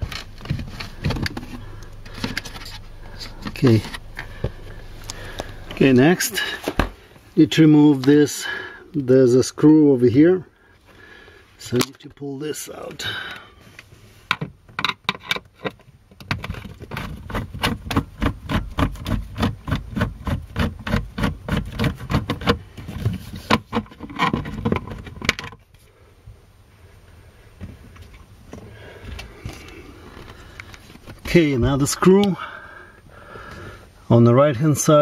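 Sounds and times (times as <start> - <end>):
faint handling sounds: 26.9 - 32.4.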